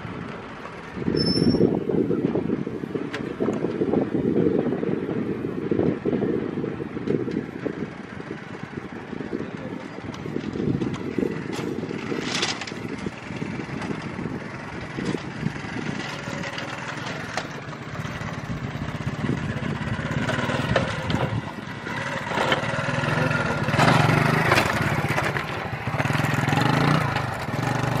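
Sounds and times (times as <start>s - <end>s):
engine running: 7.0s - 28.0s.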